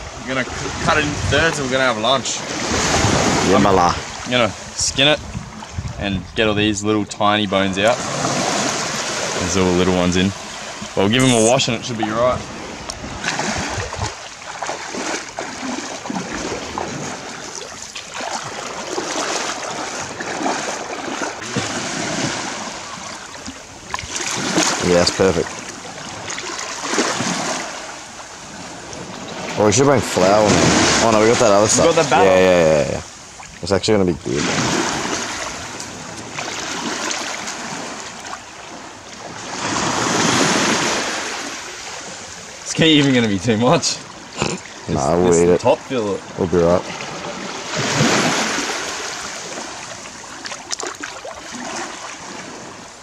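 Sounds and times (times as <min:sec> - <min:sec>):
seawater sloshing and lapping: 0:00.0 - 0:06.1, 0:07.6 - 0:53.0
small waves washing onto rocks: 0:00.0 - 0:06.1, 0:07.6 - 0:53.0
splashes from wading steps: 0:07.8 - 0:32.2, 0:34.3 - 0:44.9, 0:46.8 - 0:53.0.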